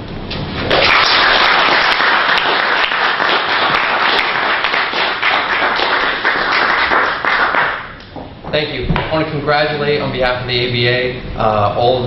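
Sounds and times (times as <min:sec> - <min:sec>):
audience applauding: 0:00.7 - 0:08.0.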